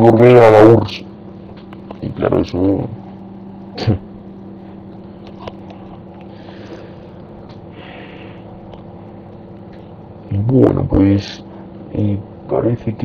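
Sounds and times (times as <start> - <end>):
electrical hum and hiss: 0.0 - 13.0
faint breaths: 5.8 - 8.6.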